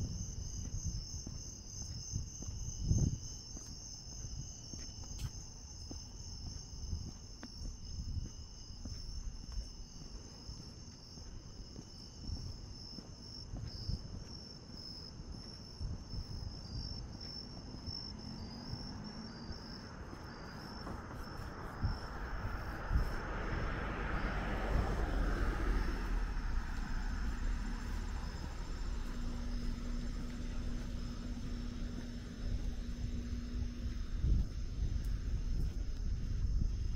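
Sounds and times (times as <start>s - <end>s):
crickets and night insects chirping: 0.0s - 36.9s
car passing: 18.0s - 36.5s.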